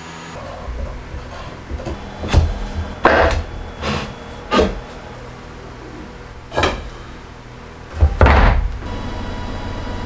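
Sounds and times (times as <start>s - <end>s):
heavy deep thud: 7.9s - 8.9s.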